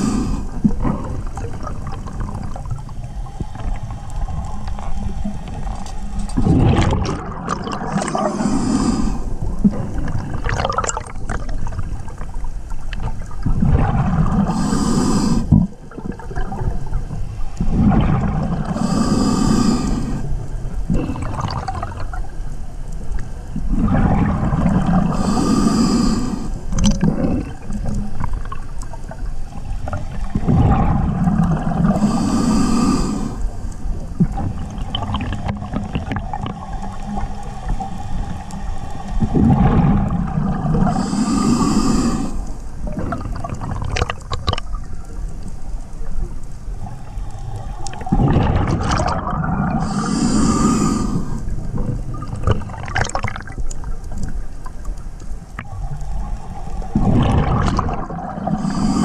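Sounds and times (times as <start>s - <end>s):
diver breathing through regulator: 0.0s - 1.3s, 7.7s - 10.1s, 14.3s - 15.6s, 17.5s - 21.7s, 25.0s - 28.0s, 31.8s - 33.8s, 40.7s - 42.7s, 49.5s - 53.2s, 56.2s - 59.0s
exhaled bubbles rumbling: 0.0s - 59.0s
underwater water noise: 0.0s - 59.0s
regulator hiss: 40.9s - 42.7s, 49.8s - 51.6s, 58.6s - 59.0s.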